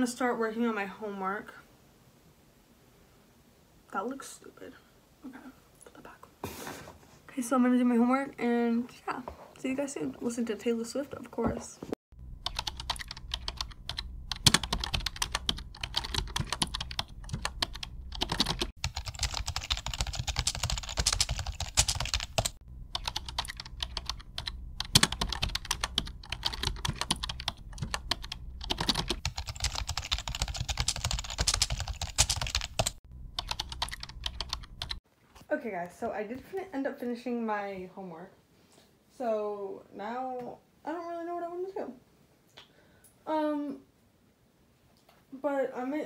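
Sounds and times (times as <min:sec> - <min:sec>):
fast typing on laptop keyboard: 0:12.5 - 0:35.0.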